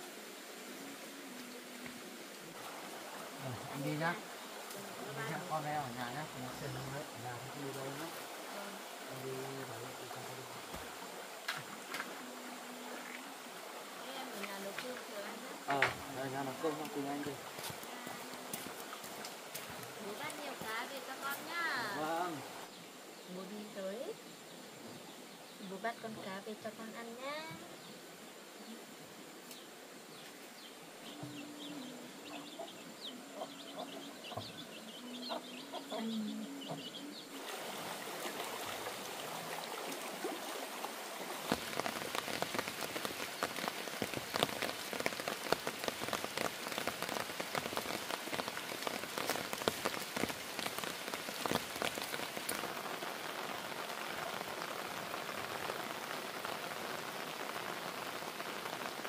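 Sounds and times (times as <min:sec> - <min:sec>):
rain falling: 0:00.0 - 0:59.0
faint low calls: 0:30.0 - 0:57.5.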